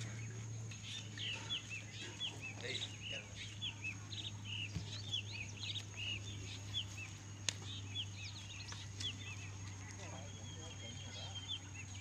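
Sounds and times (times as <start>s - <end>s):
small birds chirping: 0.0s - 12.0s
steady low hum: 0.0s - 12.0s.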